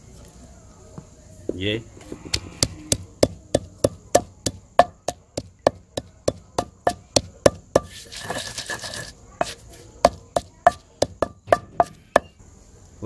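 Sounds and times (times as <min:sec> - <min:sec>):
pestle pounding in stone mortar: 0:02.3 - 0:12.4.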